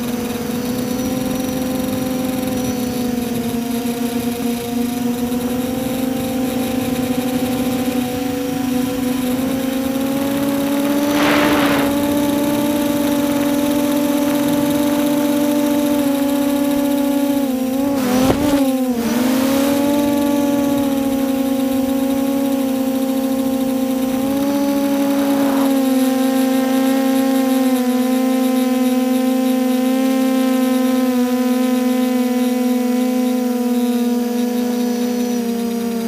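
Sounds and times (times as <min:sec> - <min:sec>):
quadcopter motors whining: 0:00.0 - 0:36.0
rushes of air noise: 0:07.9 - 0:15.4, 0:24.0 - 0:26.8.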